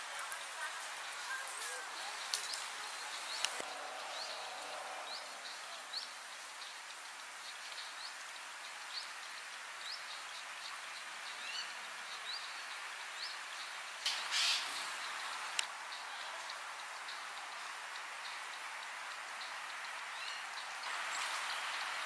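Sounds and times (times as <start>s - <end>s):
steady outdoor hiss: 0.0s - 22.0s
brief rush of noise: 14.1s - 14.8s.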